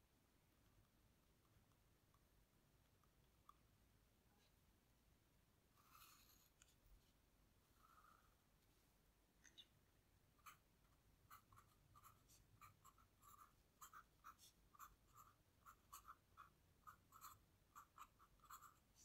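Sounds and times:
pen scratching on paper: 10.4 - 19.0.

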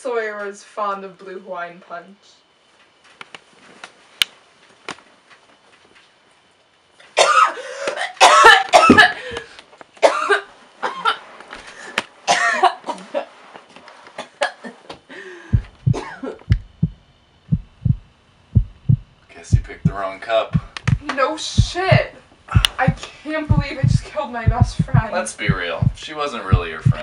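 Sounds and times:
woman coughing and choking: 7.2 - 9.2, 10.0 - 10.4, 12.3 - 12.8, 15.9 - 16.4
low dull thumps: 15.6 - 20.0, 20.6 - 27.0.

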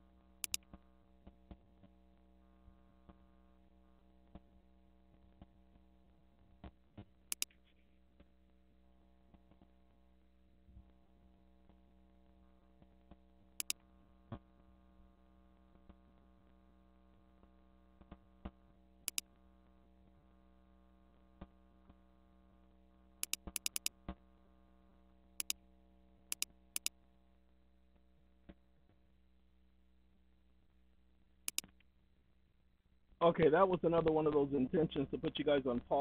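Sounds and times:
electrical hum: 0.0 - 36.0
computer mouse clicking: 0.4 - 0.7, 7.3 - 7.6, 13.6 - 13.8, 19.1 - 19.3, 23.2 - 23.9, 25.4 - 25.6, 26.3 - 26.9, 31.5 - 31.8.

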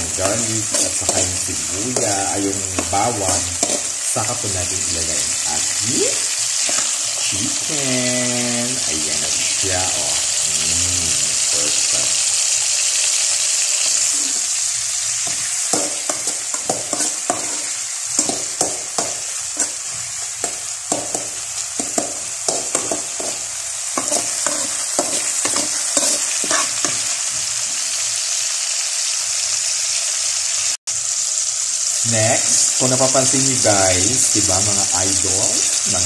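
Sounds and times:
metal spatula scraping a pan: 0.0 - 4.2, 6.5 - 7.3, 15.2 - 27.1
onions sizzling in hot oil: 0.0 - 36.0.

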